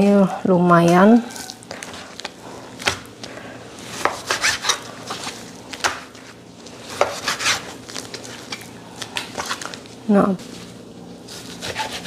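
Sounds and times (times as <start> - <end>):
knife cutting raw meat: 3.9 - 6.0, 6.9 - 8.6, 11.3 - 12.0.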